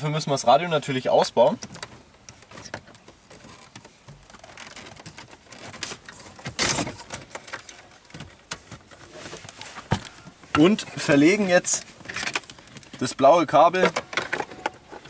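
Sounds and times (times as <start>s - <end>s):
metal-on-plastic rattling: 10.0s - 15.0s.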